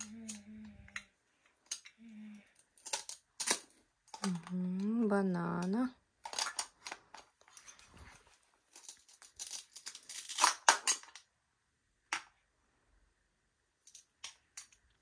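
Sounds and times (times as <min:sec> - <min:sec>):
rustling handling noises: 0:06.2 - 0:10.4.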